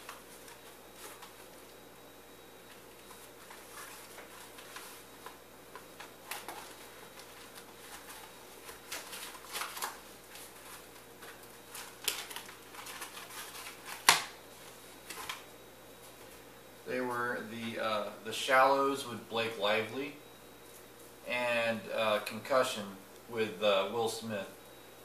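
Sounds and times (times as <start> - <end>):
package rustling and crinkling: 2.6 - 15.5.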